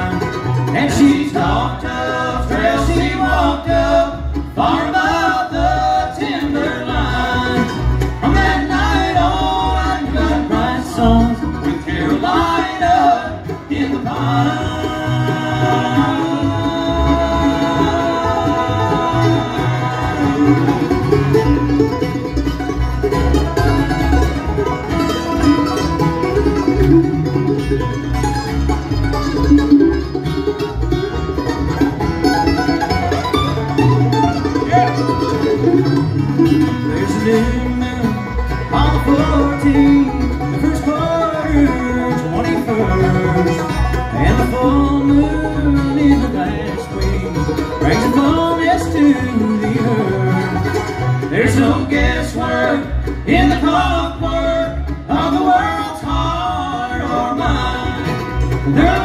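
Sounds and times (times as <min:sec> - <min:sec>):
banjo: 0:00.0 - 0:59.0
bluegrass band playing: 0:00.0 - 0:59.0.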